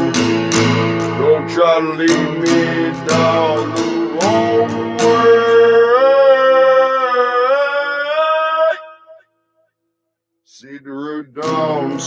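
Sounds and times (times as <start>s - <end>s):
acoustic guitar strumming: 0.0s - 8.8s, 11.3s - 12.0s.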